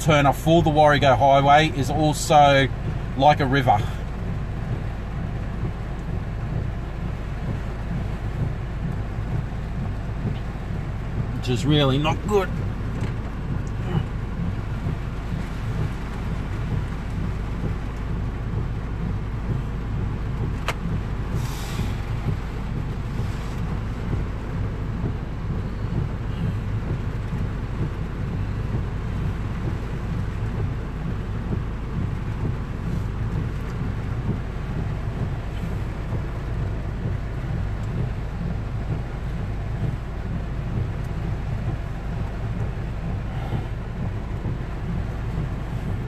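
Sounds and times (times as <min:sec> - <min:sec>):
heavy rain on a car: 0:00.0 - 0:46.0
low rumble from car: 0:00.0 - 0:46.0
brief hiss: 0:21.3 - 0:22.3.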